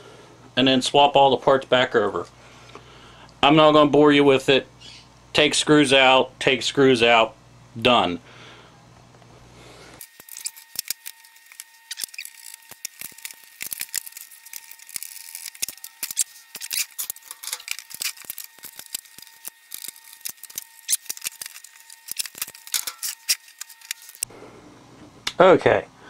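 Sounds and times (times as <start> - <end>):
screws and metal parts rattling: 10.0 - 24.2.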